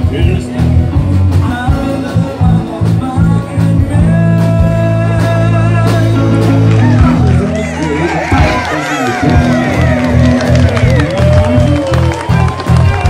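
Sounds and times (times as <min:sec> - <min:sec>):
electric guitar: 0:00.0 - 0:13.0
live band playing: 0:00.0 - 0:13.0.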